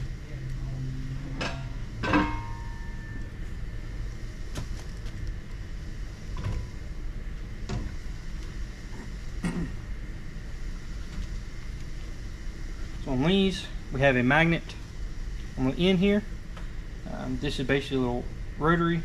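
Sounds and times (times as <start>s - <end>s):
steady low hum: 0.0s - 19.0s
metal clanks and knocks: 1.3s - 2.8s
short metallic ring: 2.0s - 3.2s.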